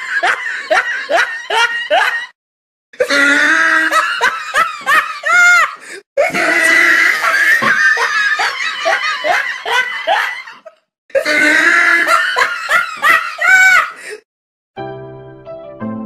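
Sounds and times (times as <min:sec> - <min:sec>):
loud laughter: 0:00.0 - 0:02.4, 0:03.0 - 0:14.1.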